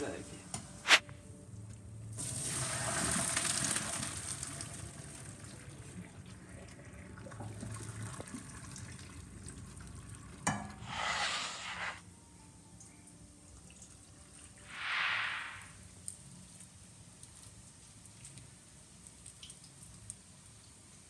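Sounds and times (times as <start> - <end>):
water pouring into a strainer: 2.2 - 10.2.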